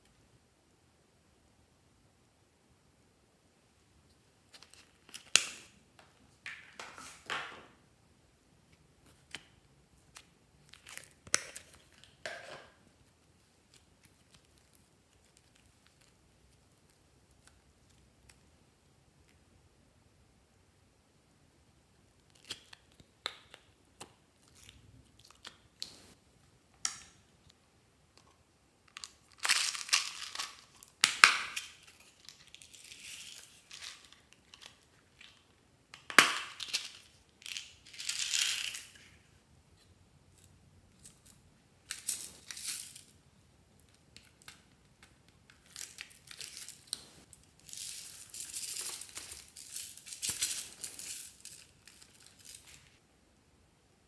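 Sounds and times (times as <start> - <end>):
plastic crinkling: 44.2 - 53.0
beads scattered into trays: 45.5 - 52.9.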